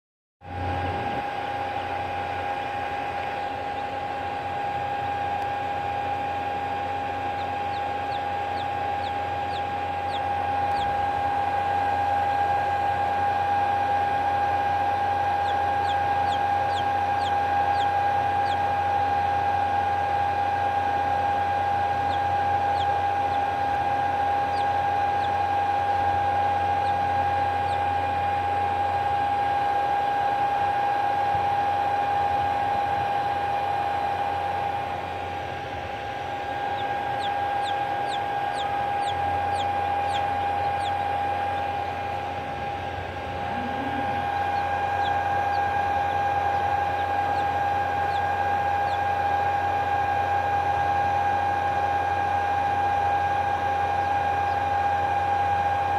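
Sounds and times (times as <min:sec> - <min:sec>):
mechanical hum with high whine: 0:00.4 - 0:55.9
chick peeping: 0:05.4 - 0:30.4, 0:36.3 - 0:50.3.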